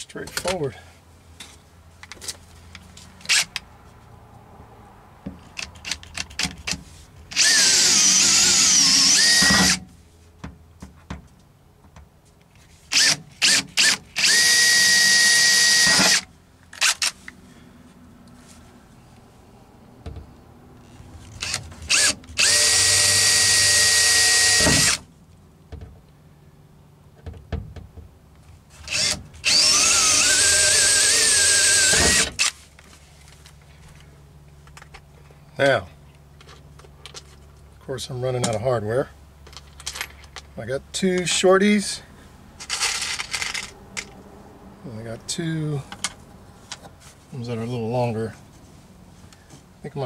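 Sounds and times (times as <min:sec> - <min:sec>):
cordless drill whining: 0:07.3 - 0:09.8, 0:12.9 - 0:17.0, 0:20.8 - 0:25.0, 0:28.8 - 0:32.6.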